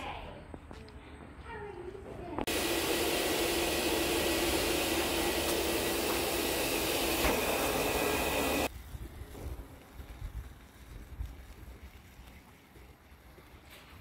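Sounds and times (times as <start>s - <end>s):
blower rushing air: 2.5s - 8.7s.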